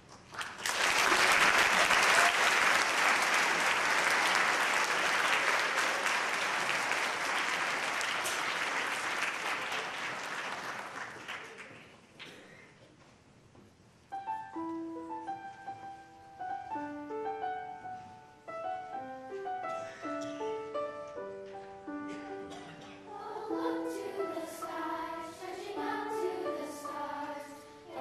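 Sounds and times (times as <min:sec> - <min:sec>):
audience applauding: 0:00.2 - 0:12.2.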